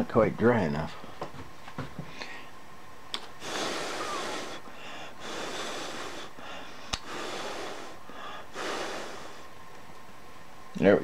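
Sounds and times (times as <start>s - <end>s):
man breathing through nose: 3.4s - 9.5s.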